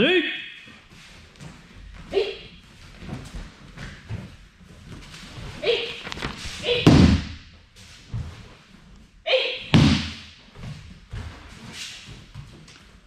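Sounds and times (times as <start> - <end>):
bodies thudding onto mats: 2.9 - 8.4, 9.7 - 11.6.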